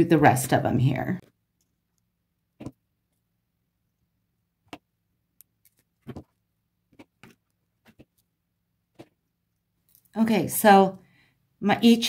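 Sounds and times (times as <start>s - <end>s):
chain handled on tabletop: 5.5s - 6.4s.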